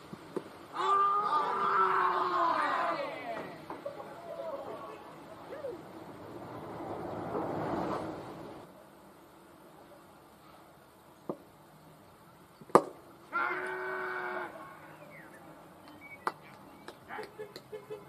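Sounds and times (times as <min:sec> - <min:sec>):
person shouting: 0:00.7 - 0:03.6, 0:13.3 - 0:14.8
bat hitting cricket ball: 0:12.7 - 0:13.0
people clapping: 0:15.8 - 0:17.8.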